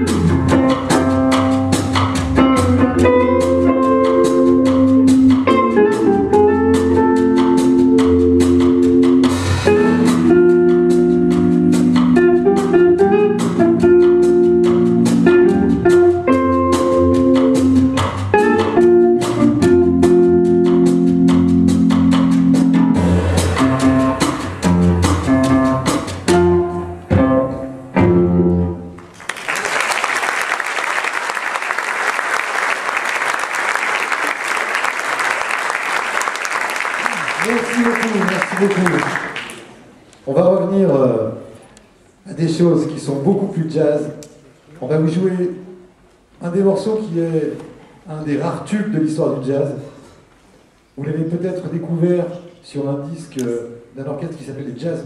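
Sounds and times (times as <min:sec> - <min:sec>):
jazz organ trio playing: 0:00.0 - 0:28.9
audience applause: 0:29.1 - 0:39.8.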